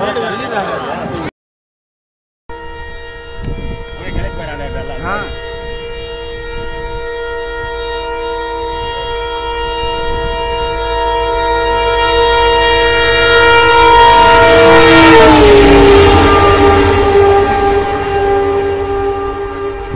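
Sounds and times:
locomotive horn: 2.5s - 19.9s
rush of passing train: 9.8s - 19.9s.

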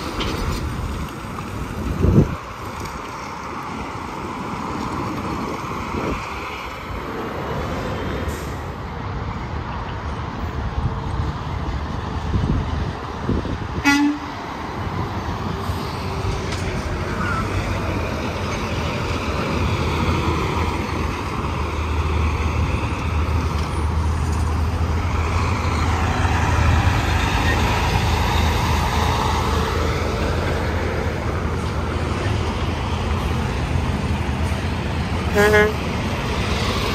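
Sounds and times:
heavy vehicle engine drone: 0.0s - 36.9s
highway traffic noise: 0.0s - 36.9s
horn toot: 13.8s - 14.4s, 35.3s - 35.8s.

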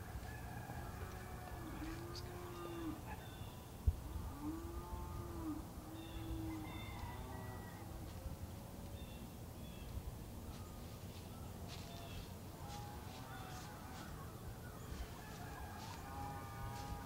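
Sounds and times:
low wind rumble: 0.0s - 17.0s
distant animal calls: 0.3s - 3.6s, 4.2s - 8.0s, 11.7s - 17.0s.

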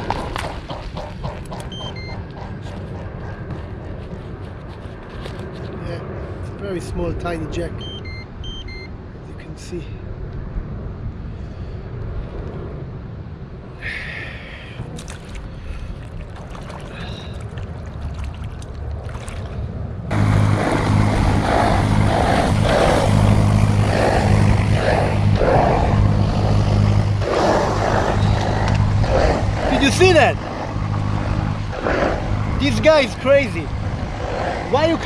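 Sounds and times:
motor boat engine drone: 0.0s - 5.5s, 14.7s - 35.0s
water and wind rumble: 0.0s - 9.4s, 10.0s - 35.0s.

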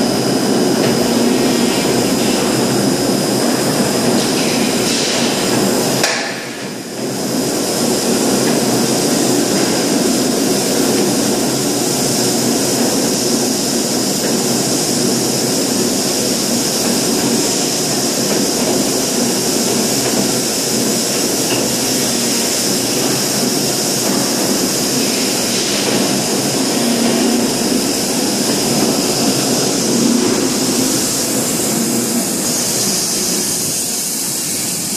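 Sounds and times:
high whine: 0.0s - 34.6s
industrial machinery noise: 0.0s - 34.9s.

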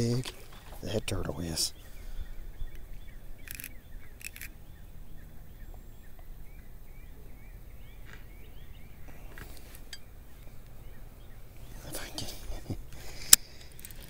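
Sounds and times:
low rumble of wind: 0.0s - 14.0s
small bird chirping: 0.0s - 14.0s
sharp clicks: 3.4s - 4.6s, 13.2s - 14.0s.

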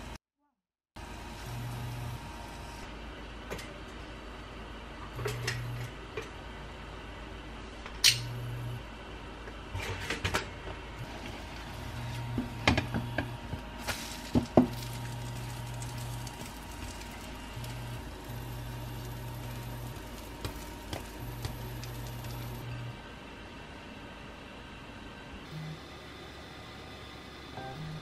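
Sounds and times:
low hum: 1.4s - 9.9s, 10.9s - 23.2s.

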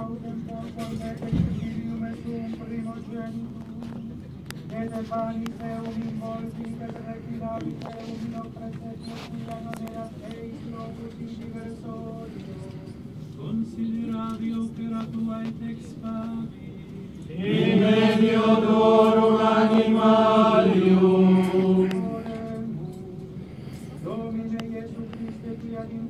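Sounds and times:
choir singing held notes: 17.3s - 22.8s
person chanting: 17.3s - 23.1s.

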